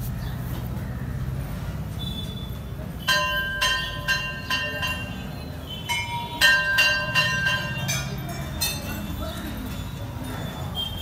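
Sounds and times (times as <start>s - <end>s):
metal bell ringing: 3.0s - 11.0s.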